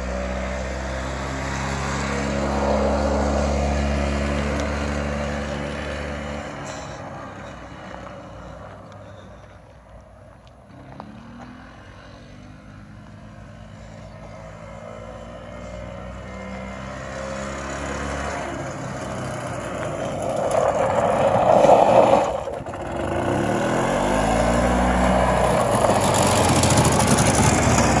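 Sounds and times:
golf cart engine running: 0.8s - 10.8s, 18.3s - 28.0s.

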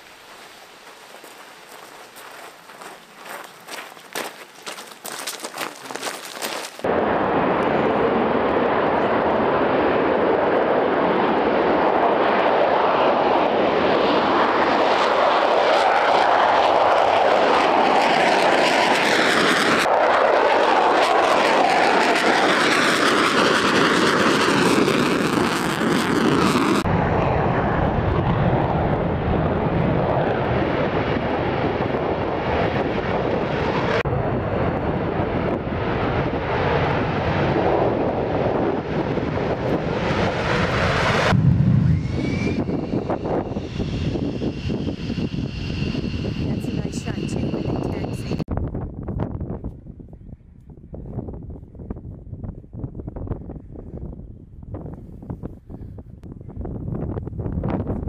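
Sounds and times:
jet engines at takeoff: 6.8s - 48.5s.

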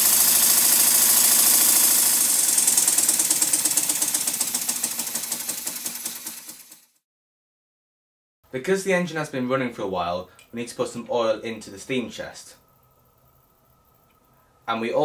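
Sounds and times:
model steam engine exhaust beats: 0.0s - 6.8s.

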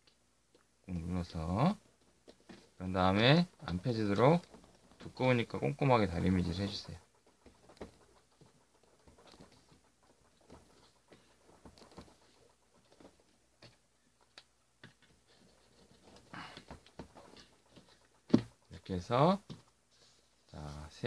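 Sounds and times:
pen rubbing along paper creases: 1.5s - 21.0s
paper rustling and tapping: 7.4s - 19.8s.

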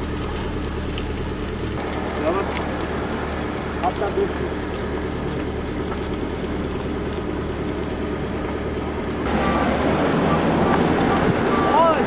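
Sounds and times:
moving vehicle drone: 0.0s - 12.0s
road noise: 0.0s - 12.0s
wind noise on microphone: 9.2s - 12.0s.

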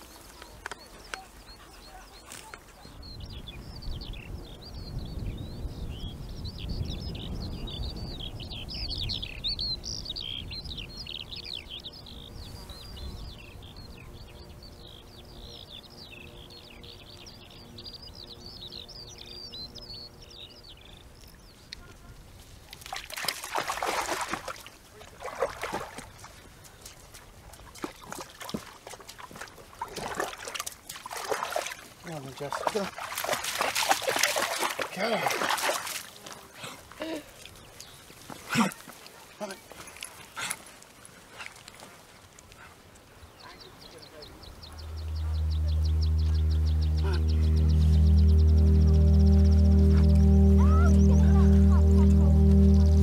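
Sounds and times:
water splashing: 22.5s - 37.7s
songbird warbling: 43.3s - 53.0s
low rumble: 44.5s - 53.0s.

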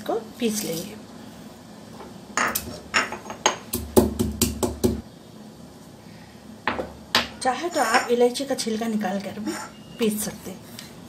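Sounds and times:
stone pestle knocking in mortar: 3.7s - 5.0s.

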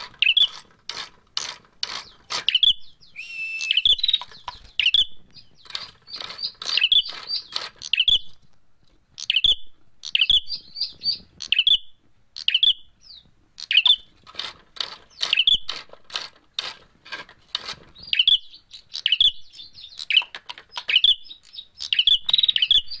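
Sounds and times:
bird chirping sharply: 2.0s - 8.3s, 9.2s - 14.1s, 18.0s - 23.0s.

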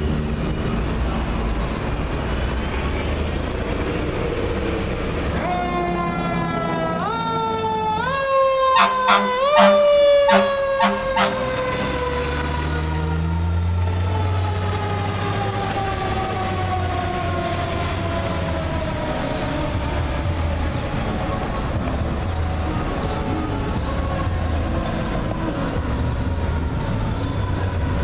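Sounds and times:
truck engine rumbling: 0.0s - 28.0s
fire engine siren wailing: 5.3s - 28.0s
short horn blasts: 8.8s - 11.4s.

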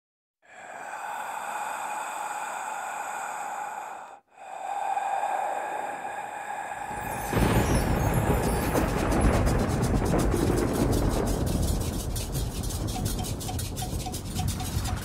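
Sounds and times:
steady rushing noise: 6.5s - 15.0s.

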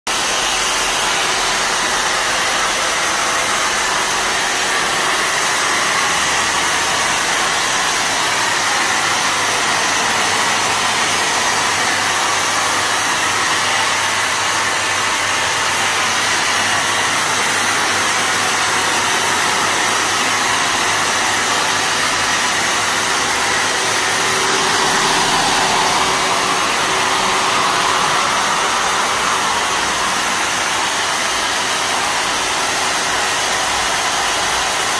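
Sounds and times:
fogger motor rushing hum: 0.2s - 34.4s.

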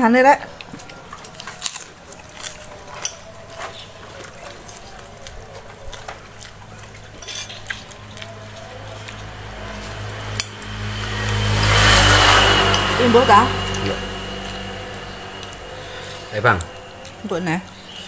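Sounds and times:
metal spoon scraping ceramic plate: 7.2s - 7.7s
low engine hum: 7.9s - 18.0s.

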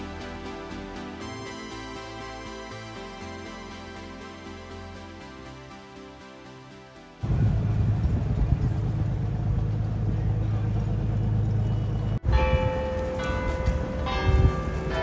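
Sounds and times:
steady low rumble: 7.2s - 15.0s
church bells ringing: 12.2s - 15.0s.

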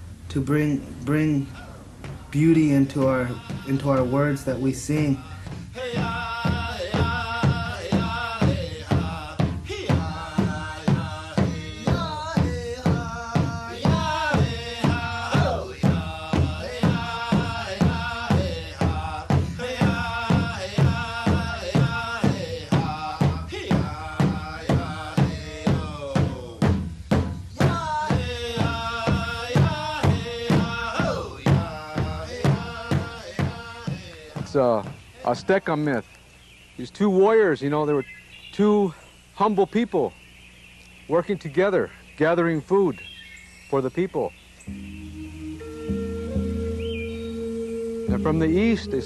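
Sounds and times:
man and boy singing in unison: 1.0s - 36.0s, 48.0s - 49.0s
large drum beaten steadily: 2.0s - 35.0s, 48.0s - 49.0s.

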